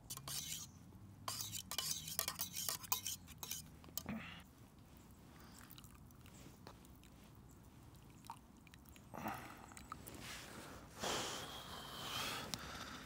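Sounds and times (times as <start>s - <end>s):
spoon stirring in a mug: 0.1s - 0.7s, 1.3s - 4.1s.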